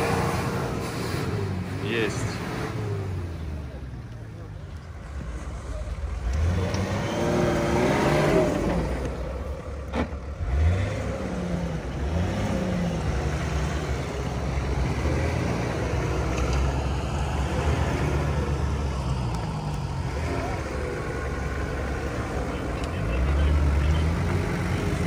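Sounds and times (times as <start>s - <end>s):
engine revving: 0.0s - 25.0s.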